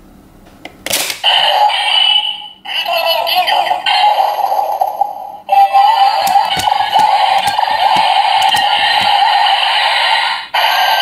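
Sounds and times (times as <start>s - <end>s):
toy electronic music and effects: 6.1s - 9.4s.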